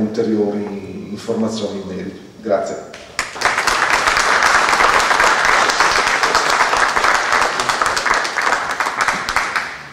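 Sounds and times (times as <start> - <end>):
audience applauding: 3.2 - 9.9.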